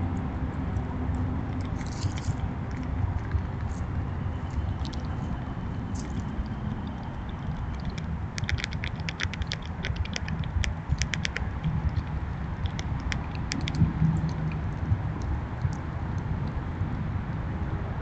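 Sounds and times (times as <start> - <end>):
low rumble: 0.0 - 18.0
squirrels cracking seeds: 1.1 - 16.3.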